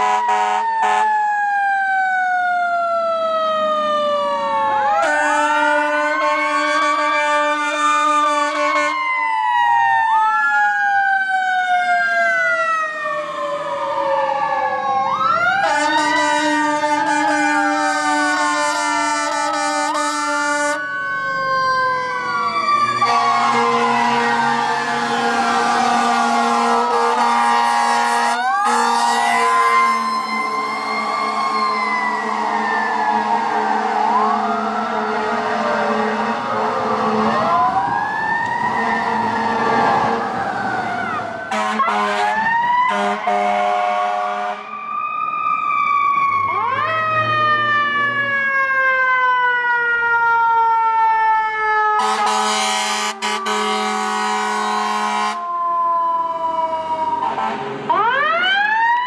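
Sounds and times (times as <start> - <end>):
air horn blasts: 0.0 - 1.0, 5.0 - 9.0, 15.6 - 20.8, 23.0 - 31.5, 41.5 - 44.7, 52.0 - 55.4
siren rising and falling: 0.0 - 59.0.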